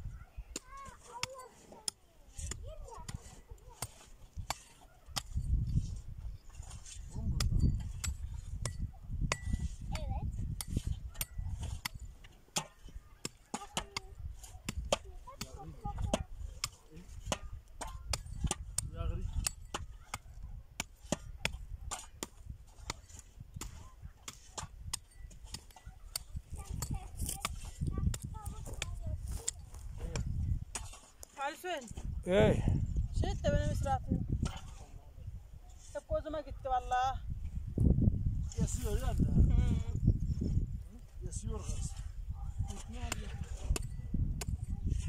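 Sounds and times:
wind rumbling on microphone: 0.0 - 0.8, 2.3 - 12.2, 14.1 - 31.1, 31.9 - 45.0
hand tools knocking stony soil: 0.5 - 32.1, 42.6 - 45.0.

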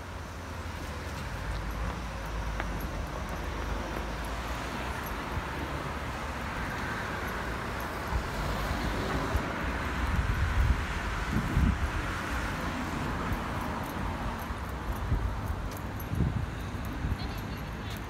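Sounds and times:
steady traffic noise: 0.0 - 18.0
wind buffeting microphone: 8.0 - 18.0.

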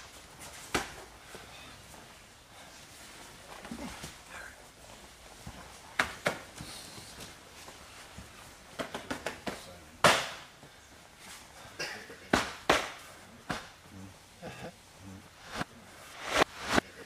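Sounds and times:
open-hand slaps on body: 8.8 - 10.5, 12.3 - 13.8.

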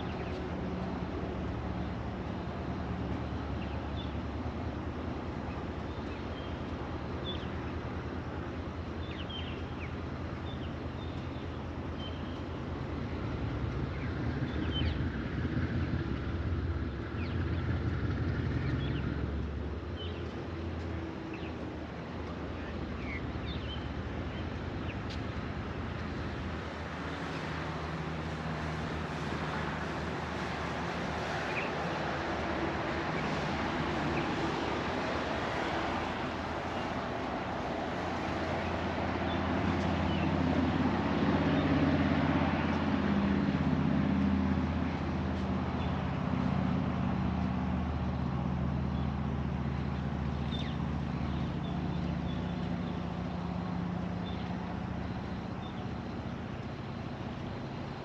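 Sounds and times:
birds chirping: 49.7 - 53.2.

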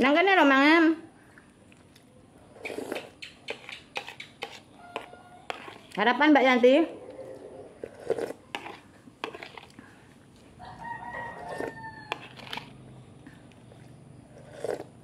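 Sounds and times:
rooster crowing: 10.6 - 12.6.

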